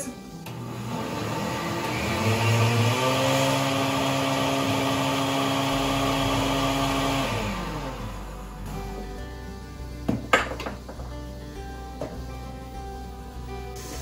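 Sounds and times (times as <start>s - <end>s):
blender motor running: 0.2s - 9.6s.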